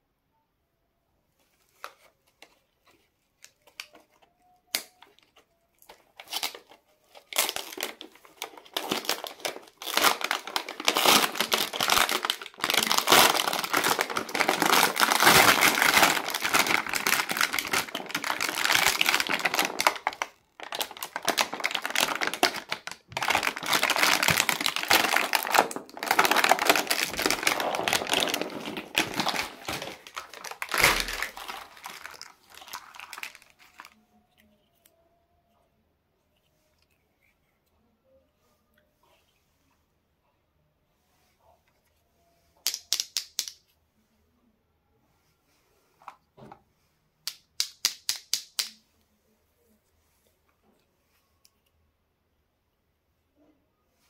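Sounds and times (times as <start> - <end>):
plastic packaging crinkling: 2.9 - 34.0.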